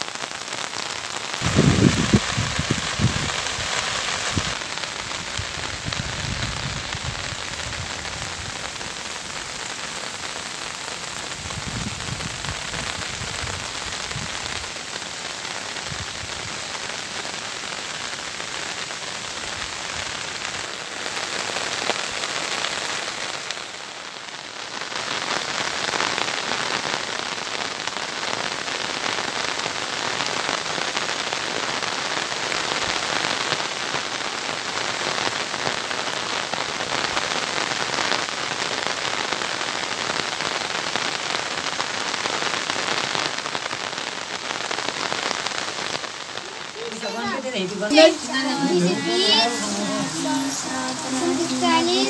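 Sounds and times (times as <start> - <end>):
heavy rain on leaves: 0.0 - 52.0
low thunder rumbles: 1.4 - 3.7.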